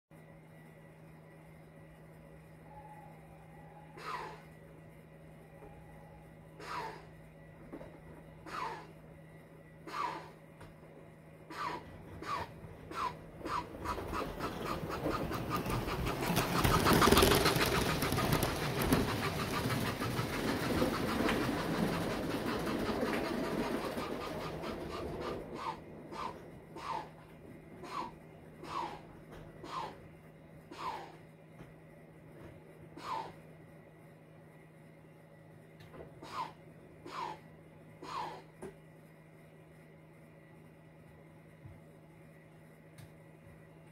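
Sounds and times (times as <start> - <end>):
faint steady hum: 0.1 - 43.9
model steam train chuffing: 3.9 - 4.5, 6.5 - 7.2, 8.4 - 9.0, 9.8 - 10.4, 11.4 - 30.0, 30.6 - 31.2, 32.9 - 33.4, 36.2 - 38.6
model train wheels clattering: 12.2 - 26.9.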